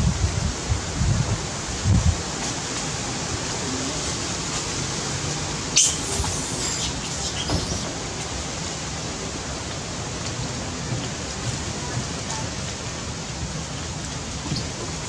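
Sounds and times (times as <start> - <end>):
hiss of wind or rustling: 0.0 - 15.0.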